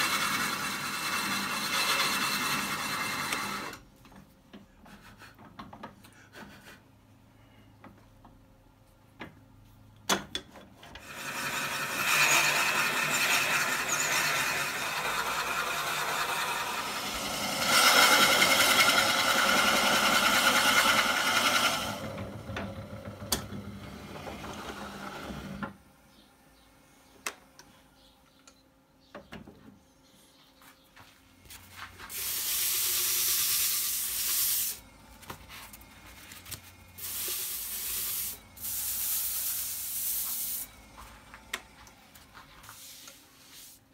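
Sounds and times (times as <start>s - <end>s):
faint motor hum: 0.0s - 43.5s
lathe drill squealing cut: 11.0s - 22.1s.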